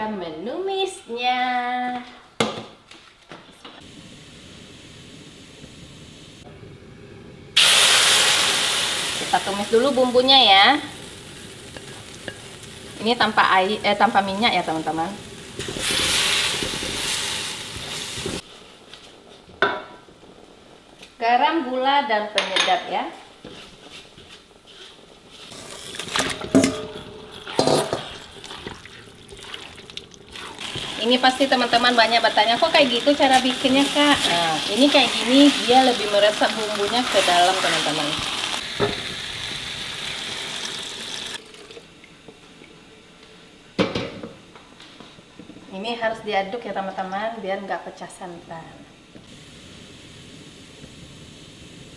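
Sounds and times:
spice paste sizzling in a wok: 7.6s - 22.2s, 23.0s - 41.4s, 49.3s - 51.9s
liquid pouring hiss: 24.7s - 34.0s, 34.6s - 42.2s, 49.3s - 51.9s.

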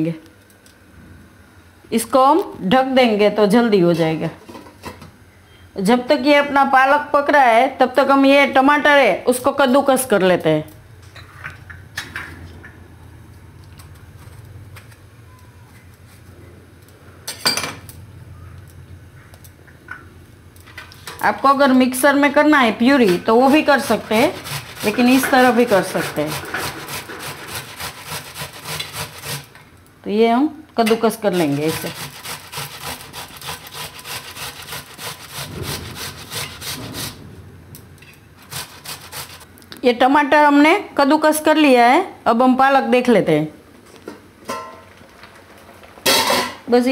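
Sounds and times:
tomato grated on box grater: 23.0s - 29.5s, 31.3s - 37.2s, 38.4s - 39.4s.

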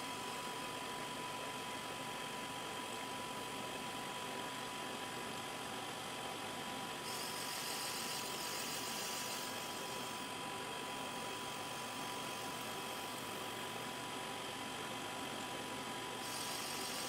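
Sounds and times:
grinder whine: 6.3s - 17.0s.

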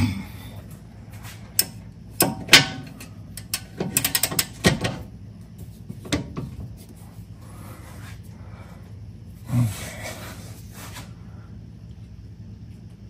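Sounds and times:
metal wrench clicking and knocking: 1.6s - 4.7s.

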